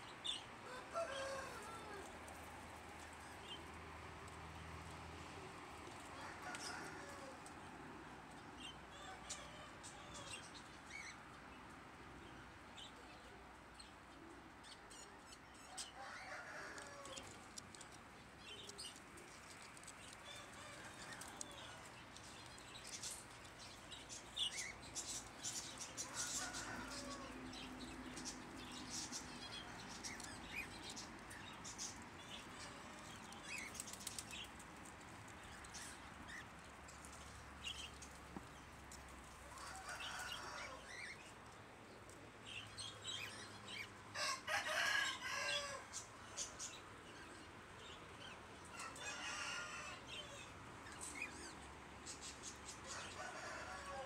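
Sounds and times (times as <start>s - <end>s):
clicks and rustles: 16.8s - 20.3s
birds flapping wings: 33.6s - 34.8s.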